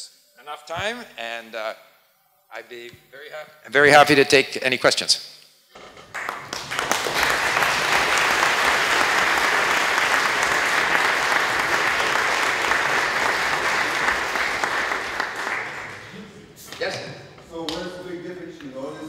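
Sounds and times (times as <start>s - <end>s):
audience applauding: 5.8s - 16.2s.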